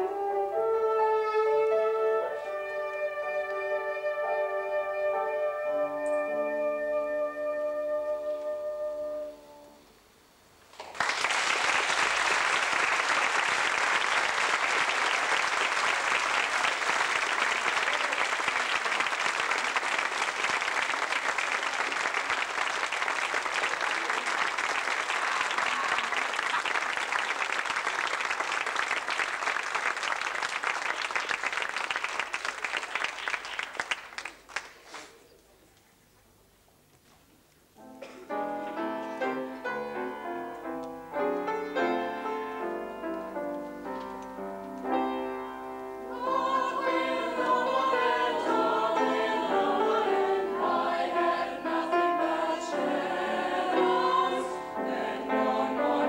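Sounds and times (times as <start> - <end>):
music: 0.0 - 10.0, 37.8 - 56.0
audience applauding: 10.7 - 35.1.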